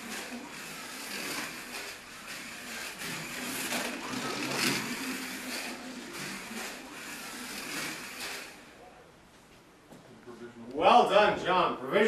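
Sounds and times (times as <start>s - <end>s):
slot car motor whirring: 0.0s - 8.9s.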